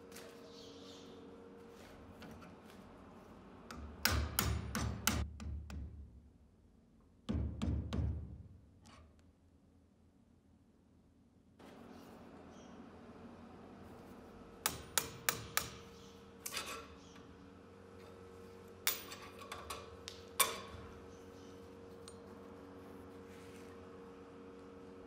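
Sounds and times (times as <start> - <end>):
steady low hum: 0.0 - 25.0
hammer tapping metal punch: 3.7 - 6.0, 14.6 - 16.9.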